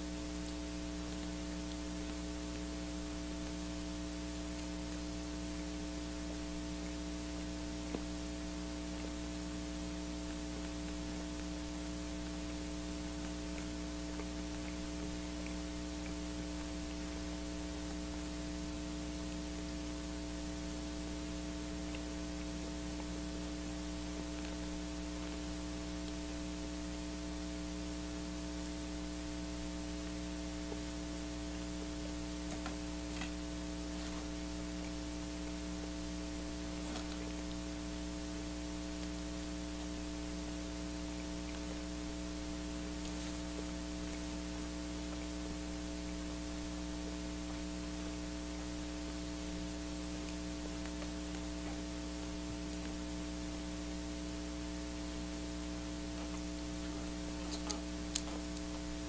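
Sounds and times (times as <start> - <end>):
background hiss: 0.0 - 59.0
electrical mains hum: 0.0 - 59.0
faint clicks: 6.8 - 20.2, 56.2 - 58.8.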